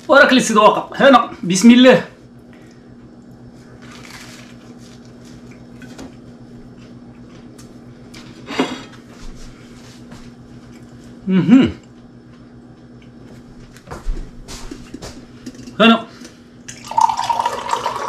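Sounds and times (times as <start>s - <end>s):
low electrical hum: 0.0s - 18.0s
faint chewing: 2.5s - 8.3s, 10.5s - 11.2s
toasted bread crunching: 3.6s - 7.8s.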